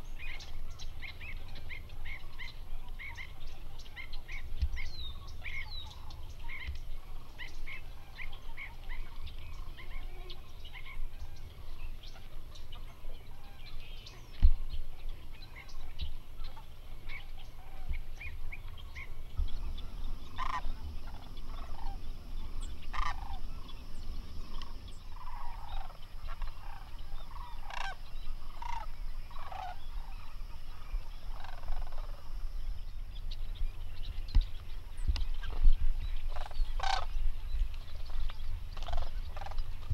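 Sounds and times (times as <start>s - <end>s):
steady low rumble: 14.5s - 39.9s
cranes rolling calls: 15.2s - 34.0s, 34.6s - 39.9s.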